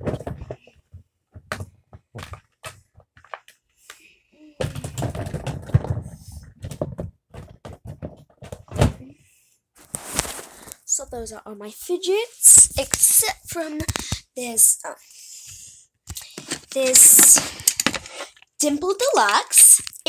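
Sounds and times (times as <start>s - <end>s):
toys clattering and rustling: 0.0s - 3.8s, 4.6s - 9.1s, 16.1s - 20.0s
toys knocking and clicking: 16.1s - 20.0s.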